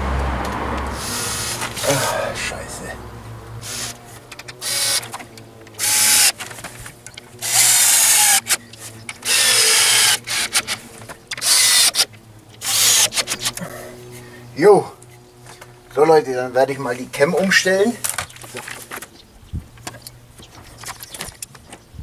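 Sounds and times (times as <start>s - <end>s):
cordless drill driving screws: 1.0s - 2.0s, 3.6s - 6.5s, 7.4s - 13.6s
small clicks and knocks: 18.0s - 21.9s.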